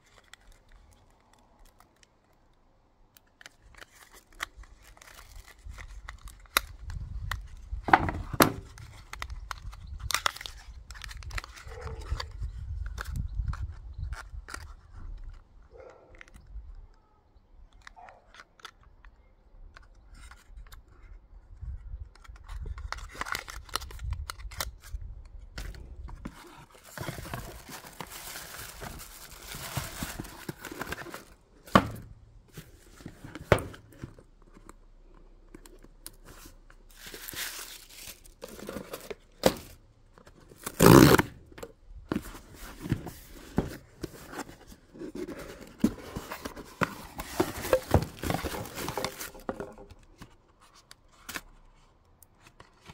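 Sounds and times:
tissue paper rustling: 0:26.4 - 0:31.3, 0:36.3 - 0:39.1, 0:42.2 - 0:49.4
cardboard tear strip ripping: 0:40.6 - 0:41.4.

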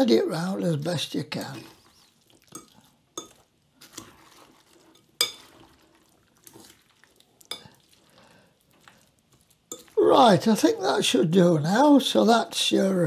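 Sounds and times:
moist stirring noise: 0:00.4 - 0:13.0
fork clinking against glass bowl: 0:02.5 - 0:04.2, 0:04.8 - 0:05.7, 0:07.5 - 0:07.8, 0:09.7 - 0:10.0.

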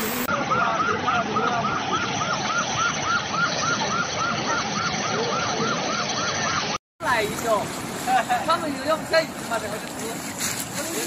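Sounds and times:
siren warbling fast: 0:00.0 - 0:06.8.

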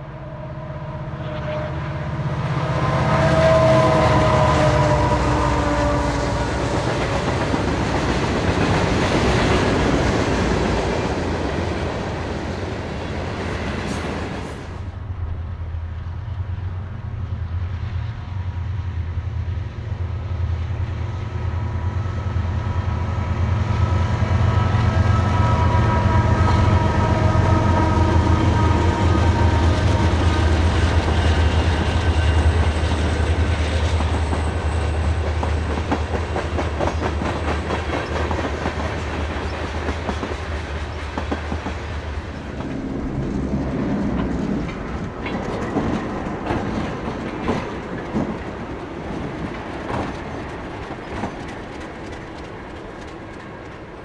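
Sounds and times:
diesel locomotive engine drone: 0:00.0 - 0:54.0
train wheels clicking over rail joints: 0:29.6 - 0:54.0.

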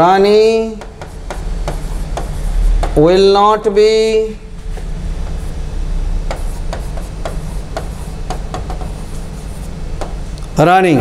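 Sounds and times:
steady low hum: 0:00.0 - 0:11.0
stylus tapping on screen: 0:00.7 - 0:03.0, 0:06.3 - 0:09.0.

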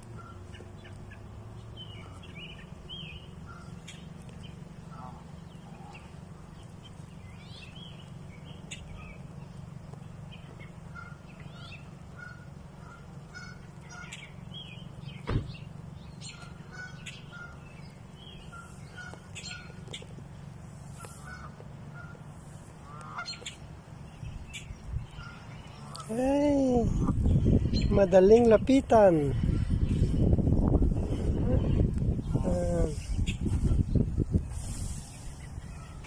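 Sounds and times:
geese honking: 0:00.0 - 0:09.3, 0:10.2 - 0:15.2, 0:16.2 - 0:26.2, 0:34.5 - 0:36.0
small birds chirping: 0:00.0 - 0:36.0
steady low rumble: 0:00.0 - 0:36.0
sharp thump: 0:15.2 - 0:15.6.

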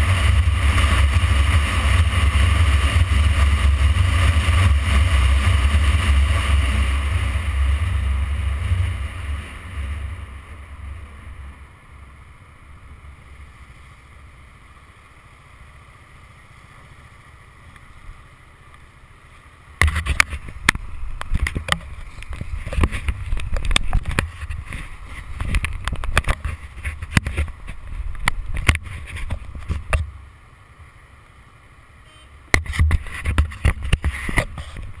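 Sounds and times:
wind rushing on microphone: 0:19.8 - 0:30.2, 0:32.6 - 0:35.0
wind buffeting gusts: 0:19.8 - 0:30.3.

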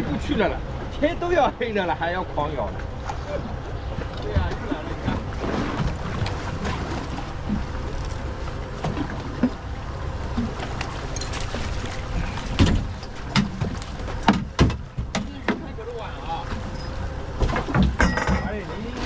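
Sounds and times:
wind and sea water rumble: 0:00.0 - 0:19.0
knocks on boat: 0:04.0 - 0:07.7, 0:12.4 - 0:15.8, 0:17.4 - 0:18.6.

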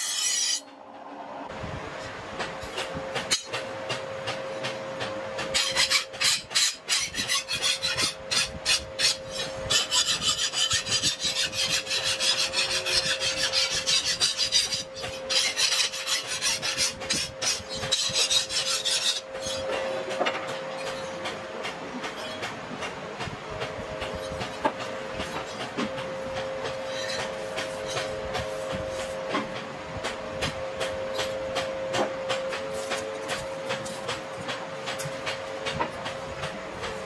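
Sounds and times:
file scraping knife blade: 0:00.0 - 0:00.7, 0:05.4 - 0:20.0, 0:26.8 - 0:29.2.

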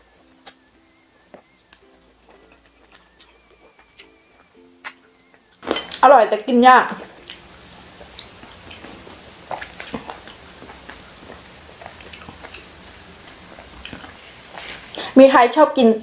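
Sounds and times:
chewing: 0:00.0 - 0:06.1, 0:06.9 - 0:15.1.

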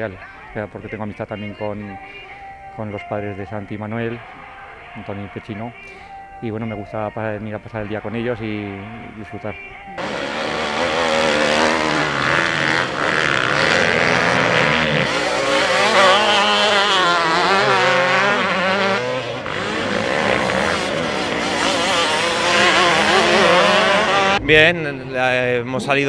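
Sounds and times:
motocross bike engines revving: 0:07.8 - 0:26.0.

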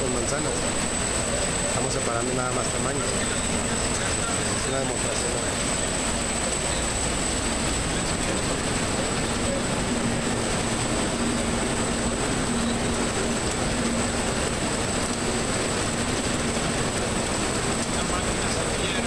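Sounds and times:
sizing machine rattling and rumbling: 0:00.0 - 0:19.0.

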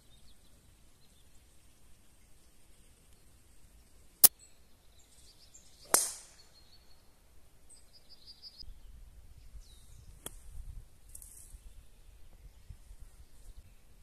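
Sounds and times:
faint bird chirps: 0:07.7 - 0:10.3
wind rumbling on microphone: 0:08.6 - 0:14.0.

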